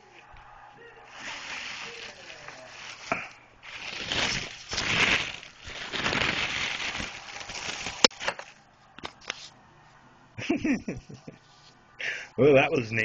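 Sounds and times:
plastic bag crinkling: 0:01.1 - 0:08.6.

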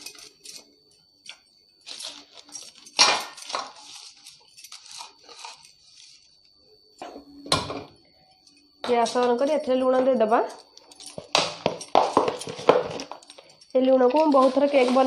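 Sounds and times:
paper rustling and crinkling: 0:14.1 - 0:15.0.

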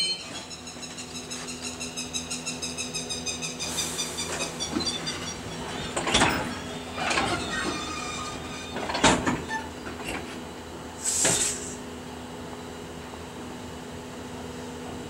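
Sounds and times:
train metallic clanks: 0:02.9 - 0:10.5
air hiss: 0:11.0 - 0:11.8.

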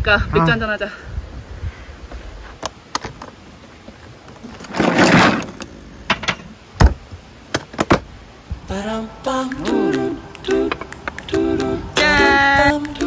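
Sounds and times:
loud scraping rustle: 0:04.4 - 0:05.7.

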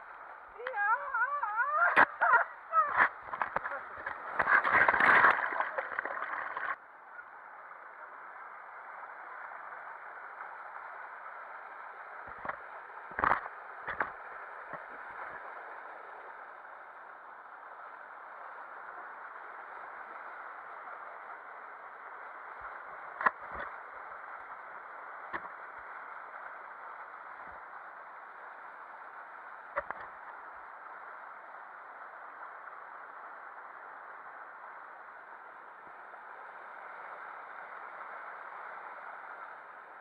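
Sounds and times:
water splashing and bubbling: 0:00.6 - 0:06.8
water rushing down a slide: 0:00.7 - 0:06.8.

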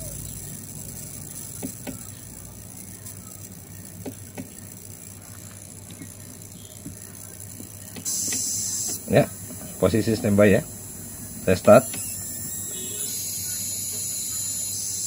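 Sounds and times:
transformer ticking and crackling: 0:00.0 - 0:15.0
sharp clicks: 0:03.1 - 0:06.2, 0:06.8 - 0:09.1, 0:11.6 - 0:12.6.

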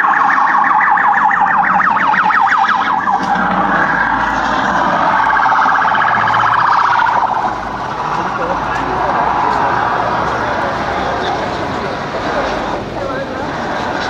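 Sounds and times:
electronic siren sweeping and warbling: 0:00.0 - 0:10.1.

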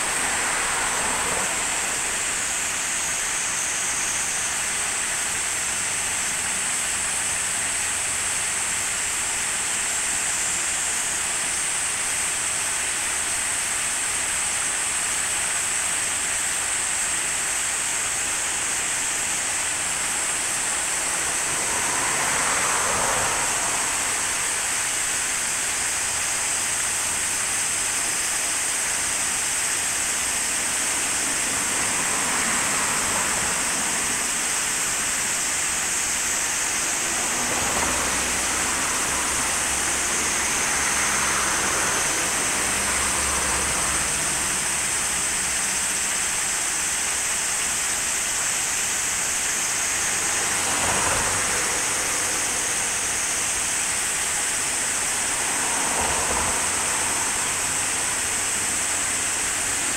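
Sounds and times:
water rushing over weirs: 0:16.6 - 0:59.9.

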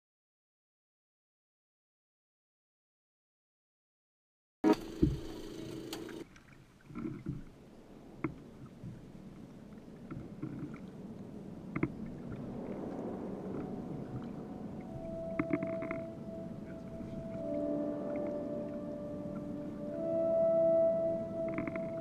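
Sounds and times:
water gurgling against a hull: 0:06.2 - 0:19.6.

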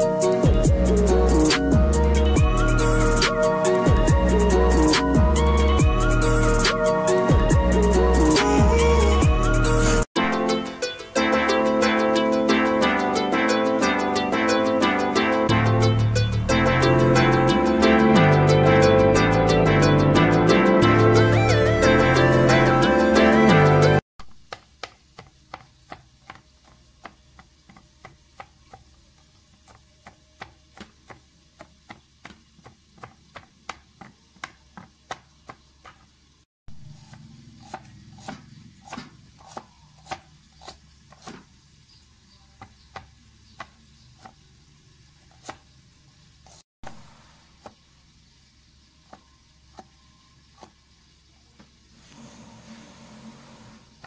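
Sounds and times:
knife chopping on cutting board: 0:37.0 - 0:41.5, 0:42.6 - 0:44.4, 0:45.3 - 0:45.6.

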